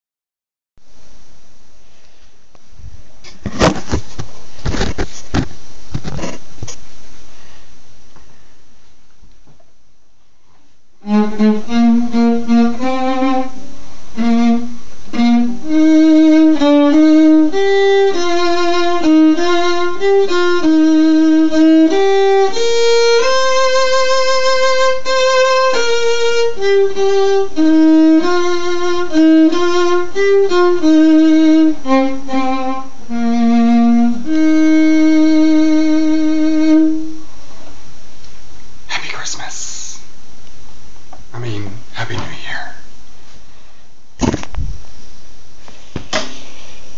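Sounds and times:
solo violin slow melody: 0:11.0 - 0:37.2.

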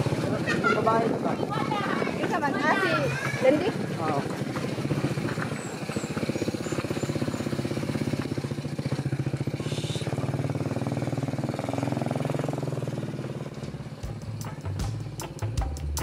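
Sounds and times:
small motorcycle engine running: 0:00.0 - 0:15.6.

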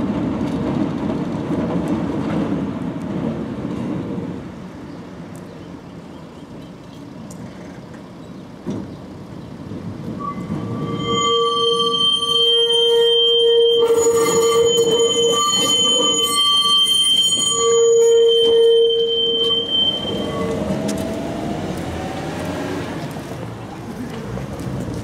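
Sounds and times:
tram wheels rumbling on rails: 0:00.0 - 0:25.0
tram wheels squealing: 0:10.0 - 0:24.4.

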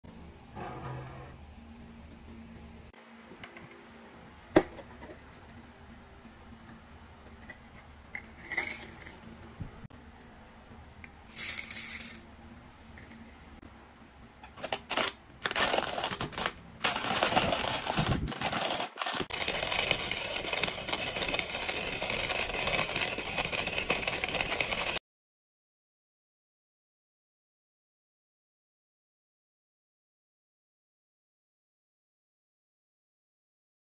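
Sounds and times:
coffee mill grinding beans: 0:07.0 - 0:09.5, 0:11.3 - 0:12.2, 0:14.4 - 0:25.0
coffee beans rattling into metal hopper: 0:08.3 - 0:09.4, 0:11.3 - 0:12.2, 0:14.6 - 0:25.0.

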